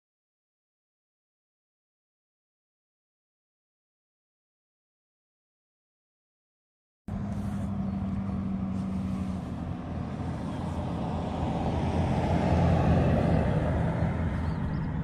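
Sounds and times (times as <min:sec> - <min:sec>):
pickup truck driving past: 0:07.1 - 0:15.0.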